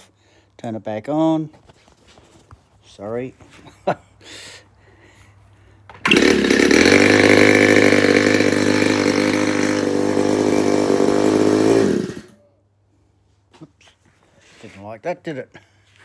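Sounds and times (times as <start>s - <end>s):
model aircraft engine running: 6.0s - 12.3s.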